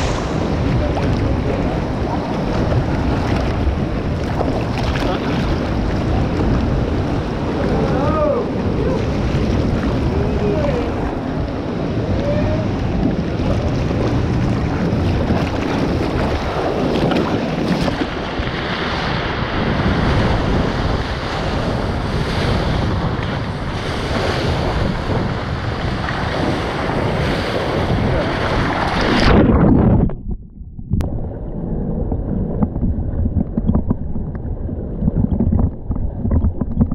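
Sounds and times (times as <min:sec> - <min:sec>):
rushing churning water: 0:00.0 - 0:30.0
wind buffeting microphone: 0:00.0 - 0:36.9.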